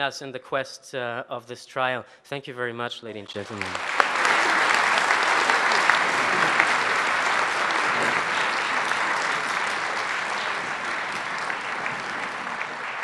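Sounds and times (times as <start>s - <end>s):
audience applauding: 3.3s - 13.0s.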